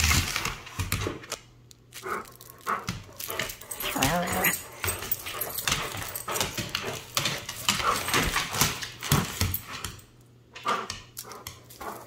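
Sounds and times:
scuffling and clicking on floor: 0.0s - 12.0s
dog noises: 2.0s - 9.3s.

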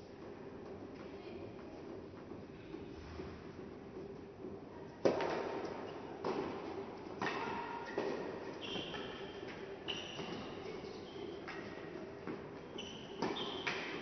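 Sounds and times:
short high squeaks: 12.7s - 13.7s.

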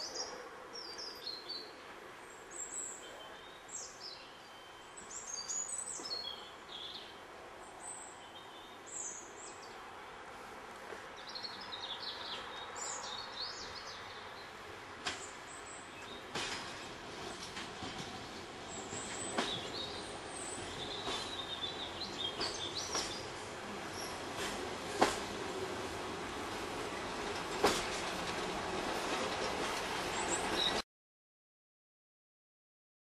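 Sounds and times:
outdoor background hiss: 0.0s - 30.6s
train approaching: 5.9s - 30.8s
birds chirping and singing: 18.8s - 23.3s.

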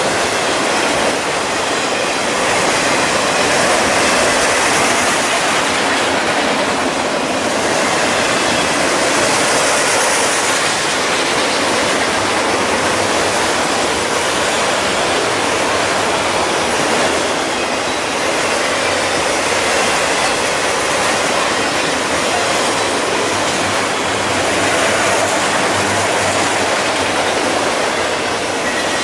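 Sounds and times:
freight train wheels on rails: 0.0s - 29.0s.

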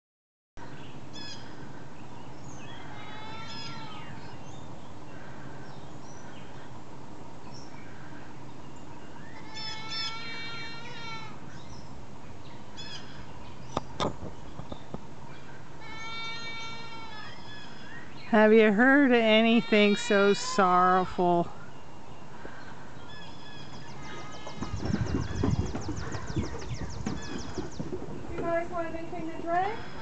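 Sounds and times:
goat bleating: 2.8s - 4.1s, 9.4s - 11.4s, 15.8s - 17.4s, 19.3s - 20.7s
small birds chirping: 11.5s - 15.7s, 16.8s - 30.0s.

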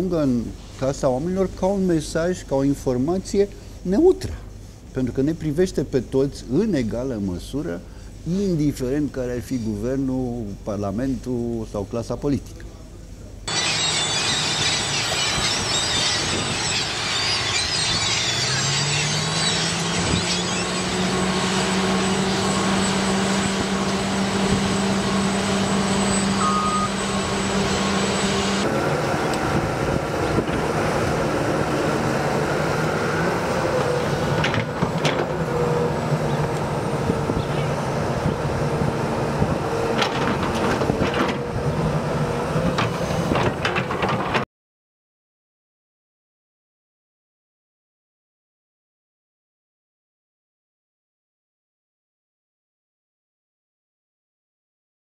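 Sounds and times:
gulls calling: 13.5s - 38.1s
compactor diesel engine droning: 13.5s - 44.4s
excavator diesel engine running: 13.5s - 44.4s.

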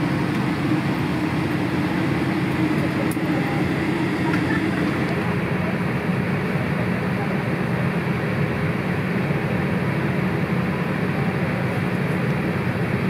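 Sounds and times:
airplane cabin rushing noise: 0.0s - 5.3s.

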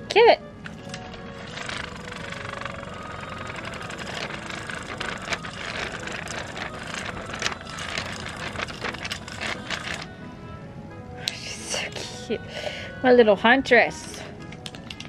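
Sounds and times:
cat purring: 0.6s - 10.2s.

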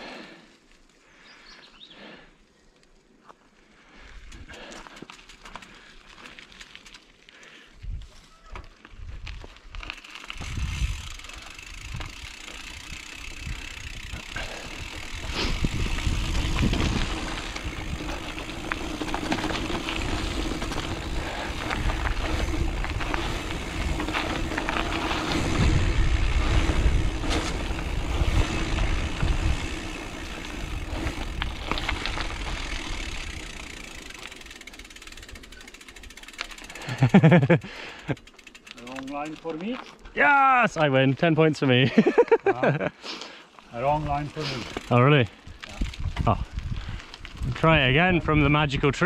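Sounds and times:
bike frame rattling: 4.3s - 7.2s, 9.3s - 40.0s, 43.7s - 48.6s
bike tyres rumbling over rocks: 9.0s - 37.4s, 43.8s - 48.6s.

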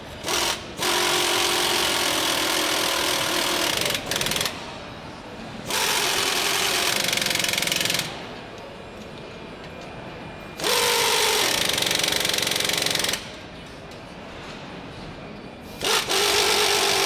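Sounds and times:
pneumatic power tool rattling: 0.0s - 4.8s, 5.6s - 8.2s, 10.6s - 13.4s, 15.7s - 17.0s.

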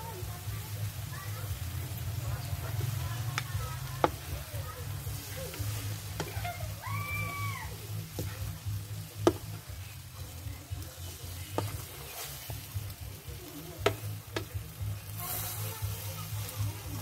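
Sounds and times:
food frying in a pan: 0.0s - 17.0s
spatulas scraping a pan: 3.9s - 17.0s
spatulas knocking against pan: 9.2s - 9.6s, 13.8s - 14.6s.

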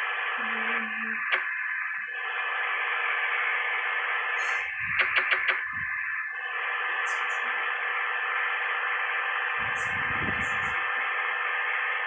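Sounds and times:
sharp clicks: 1.3s - 1.5s, 4.4s - 5.6s.

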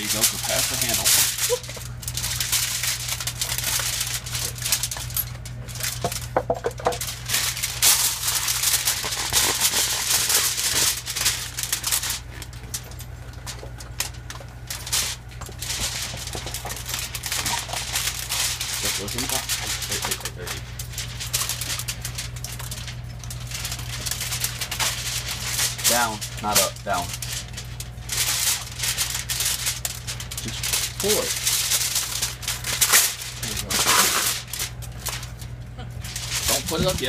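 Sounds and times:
aluminum foil crinkling: 0.0s - 37.0s.

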